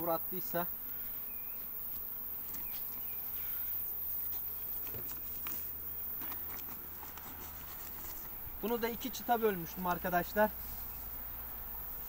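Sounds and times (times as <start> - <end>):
honeybees buzzing: 0.0 - 12.0
wooden hive frames knocking: 4.6 - 5.5.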